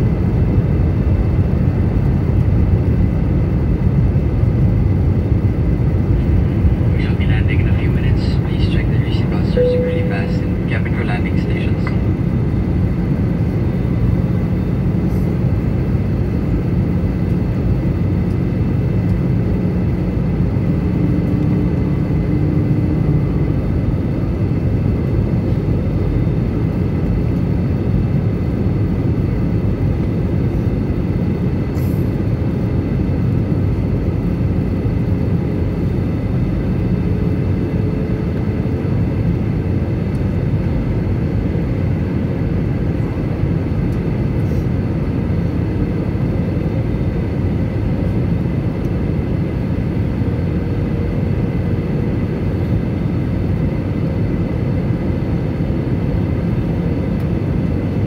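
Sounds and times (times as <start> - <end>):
aircraft cabin rumble: 0.0 - 58.0
faint steady whining tones: 5.2 - 31.2.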